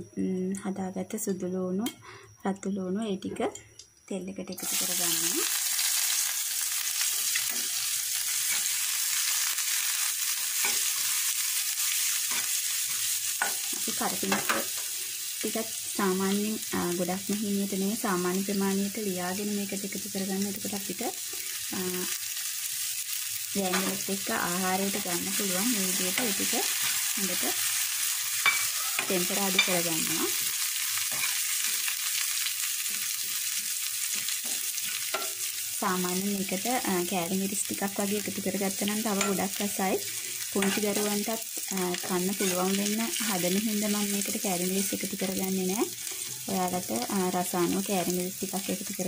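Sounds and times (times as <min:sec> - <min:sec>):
food sizzling in hot oil: 0:04.5 - 0:49.0
metal spoon tapping pan: 0:14.3 - 0:14.7, 0:28.4 - 0:29.8, 0:34.4 - 0:35.4.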